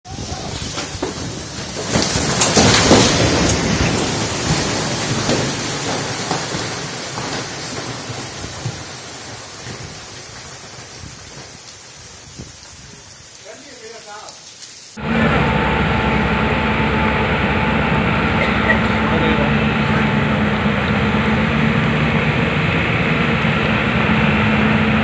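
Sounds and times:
landslide rushing rumble: 0:00.1 - 0:14.2, 0:15.0 - 0:25.0
rain falling: 0:00.1 - 0:25.0
falling rock knocks: 0:00.4 - 0:11.6.

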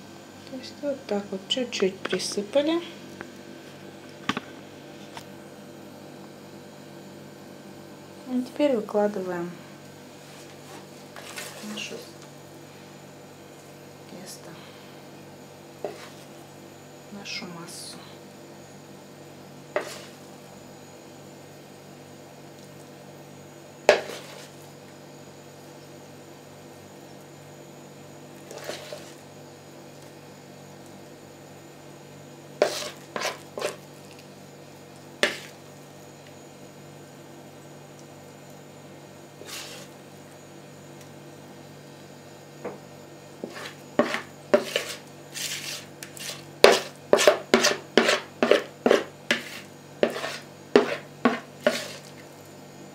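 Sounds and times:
steady low hum: 0:00.0 - 0:52.9
spoon scraping mixing bowl: 0:10.2 - 0:12.1, 0:15.8 - 0:16.3, 0:19.7 - 0:20.3, 0:23.9 - 0:24.7, 0:28.4 - 0:29.2, 0:32.6 - 0:34.3, 0:35.2 - 0:35.6, 0:39.4 - 0:40.0, 0:43.4 - 0:52.2.

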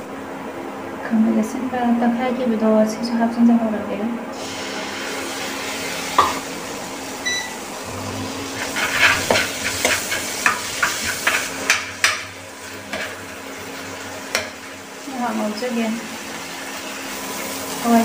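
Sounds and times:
spatula scraping a pan: 0:08.4 - 0:13.4.

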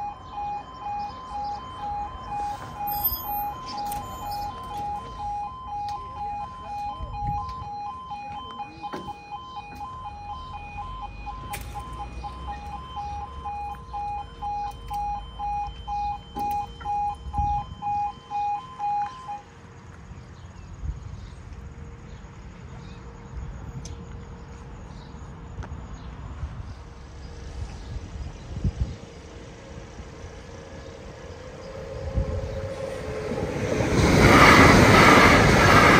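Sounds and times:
level crossing two-tone alarm: 0:00.0 - 0:19.5.

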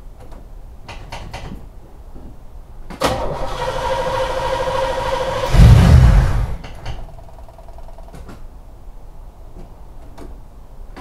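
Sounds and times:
car engine cranking: 0:03.1 - 0:07.0.

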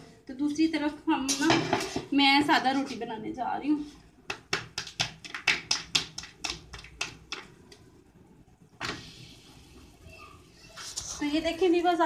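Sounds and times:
sharp kitchen taps: 0:04.2 - 0:07.8.

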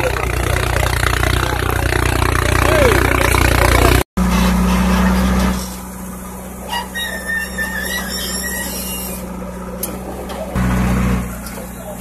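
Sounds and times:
diesel engine of backhoe loader: 0:00.0 - 0:12.0
faint high squeal: 0:06.7 - 0:09.3.

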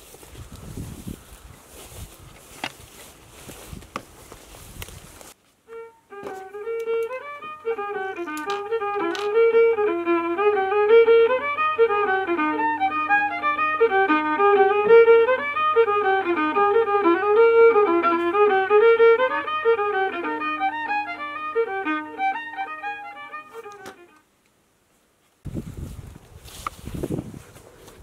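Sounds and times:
fast fiddle tune: 0:05.7 - 0:24.2.

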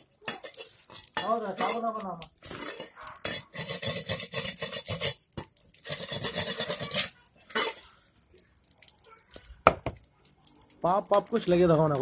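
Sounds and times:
knife scraping fish: 0:02.4 - 0:05.2, 0:05.8 - 0:07.8.

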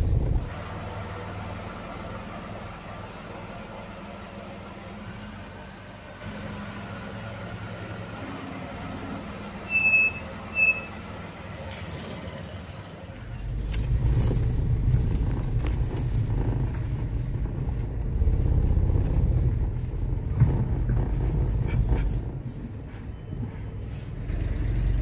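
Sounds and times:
car engine running: 0:00.0 - 0:00.8, 0:13.2 - 0:23.2.

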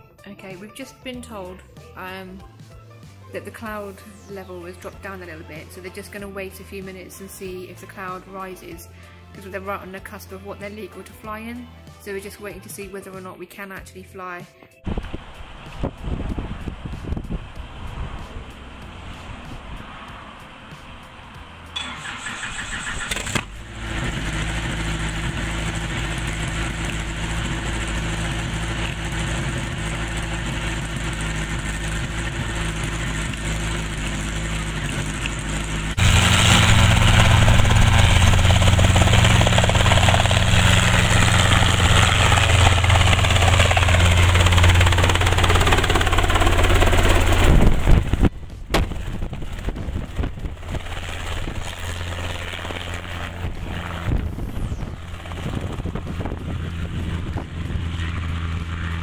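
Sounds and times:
wind on microphone: 0:14.8 - 0:20.0, 0:47.0 - 0:59.0
helicopter engine and rotor drone: 0:21.7 - 0:59.0.

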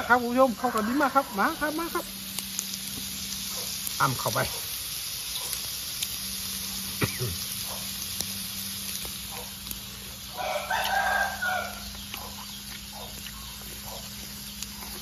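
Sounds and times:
rooster crowing: 0:00.0 - 0:01.7, 0:10.2 - 0:13.1.

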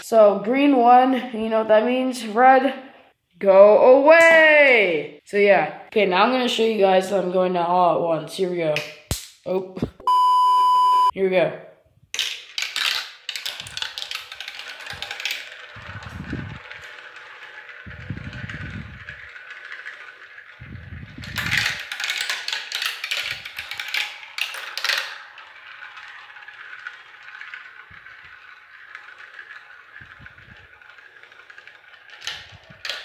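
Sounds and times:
marbles rolling in plastic run: 0:12.2 - 0:33.0.

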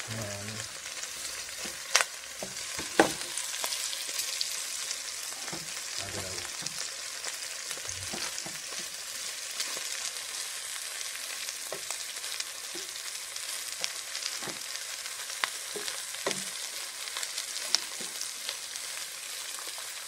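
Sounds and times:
meat and mushrooms sizzling in a pan: 0:00.0 - 0:20.0
spatula scraping and knocking a pan: 0:02.4 - 0:03.3, 0:08.0 - 0:09.0, 0:15.8 - 0:16.6.

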